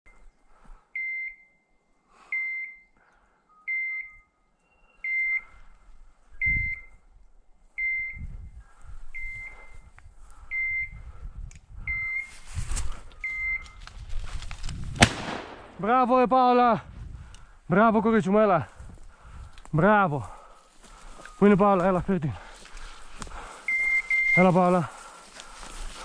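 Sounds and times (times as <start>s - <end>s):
footsteps through dry undergrowth: 12.2s - 15.1s, 18.5s - 26.0s
high electronic beeps: 13.2s - 13.8s, 23.7s - 24.5s.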